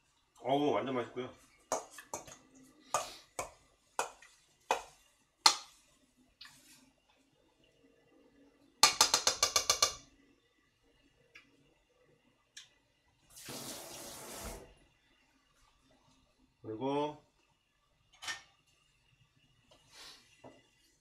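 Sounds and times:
kitchen tap running: 13.3s - 14.8s.

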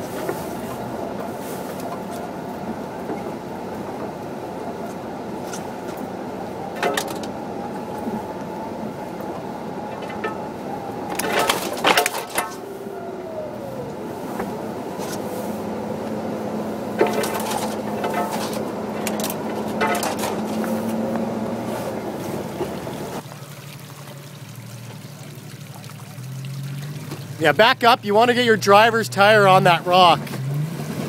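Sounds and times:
vehicle knocks and rattles: 0.0s - 8.3s, 9.2s - 12.7s, 13.7s - 23.2s
engine and tyre drone: 0.0s - 31.0s.

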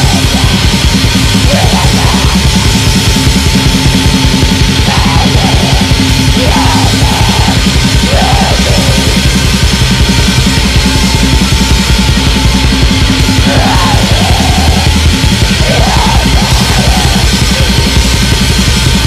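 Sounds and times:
distorted guitars: 0.0s - 19.0s
fast drumming: 0.0s - 19.0s.

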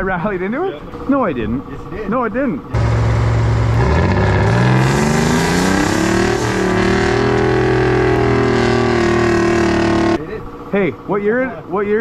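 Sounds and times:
diesel engine revving: 2.7s - 10.2s.

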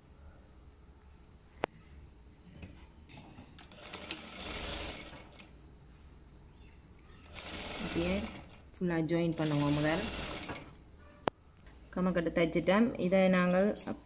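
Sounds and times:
sewing machine stitching: 3.6s - 5.5s, 7.2s - 8.6s, 9.2s - 10.8s.

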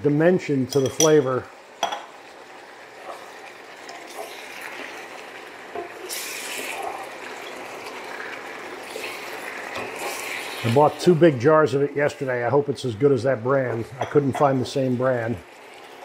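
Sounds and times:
noodles sizzling in a wok: 1.6s - 11.3s, 15.4s - 16.0s.

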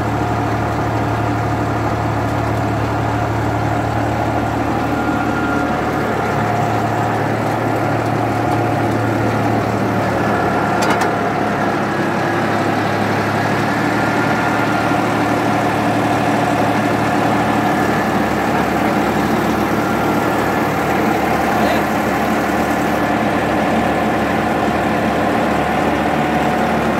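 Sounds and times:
tractor diesel engine running: 0.0s - 26.9s.

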